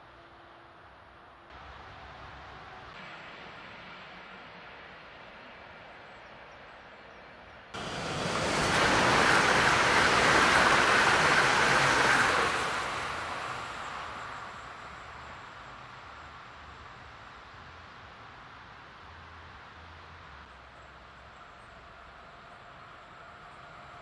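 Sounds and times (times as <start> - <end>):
electric train passing: 0.0 - 18.8, 20.5 - 24.0.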